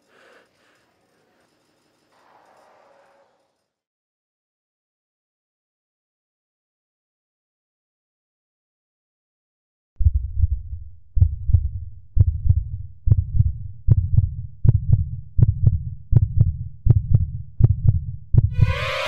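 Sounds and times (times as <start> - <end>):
heartbeat thumps: 10.0 - 19.0
music: 18.5 - 19.0.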